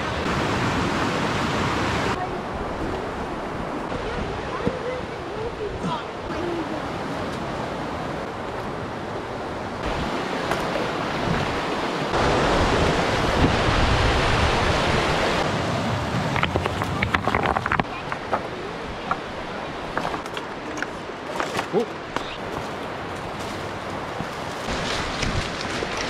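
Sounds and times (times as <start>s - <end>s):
white-water river rushing: 0.0s - 26.0s
brush rustling: 15.9s - 19.2s, 19.8s - 26.0s
footsteps on loose rock: 16.1s - 18.5s, 19.9s - 26.0s.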